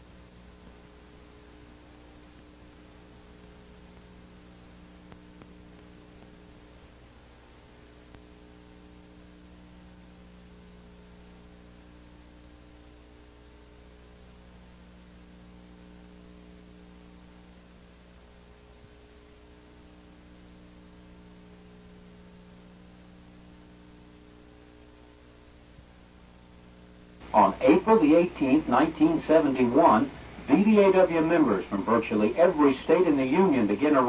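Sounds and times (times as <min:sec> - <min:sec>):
constant hiss: 0:00.0 - 0:34.0
faint mains hum: 0:00.0 - 0:34.0
faint clicks: 0:05.0 - 0:06.4.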